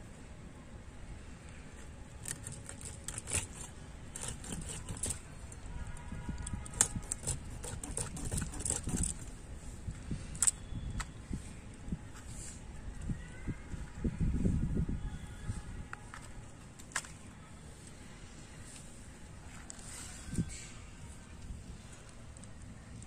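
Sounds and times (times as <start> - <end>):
fish scraping against blade: 2.3 - 5.2, 6.6 - 9.2.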